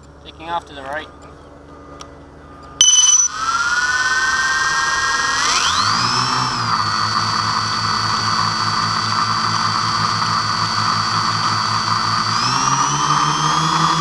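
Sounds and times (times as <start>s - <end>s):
model airplane motors whining: 3.3s - 14.0s.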